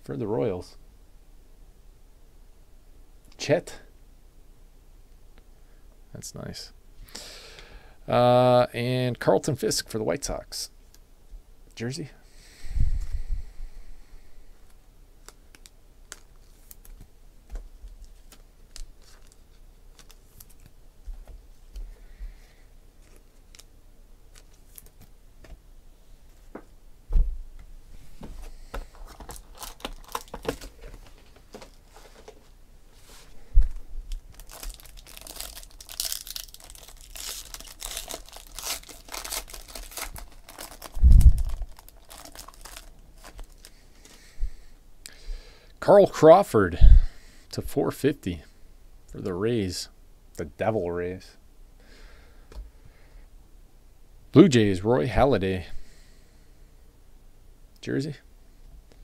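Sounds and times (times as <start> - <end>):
heavy thump: 27.1 - 27.5
plastic wrapping crinkling and tearing: 28.9 - 32.3, 34.1 - 44.2.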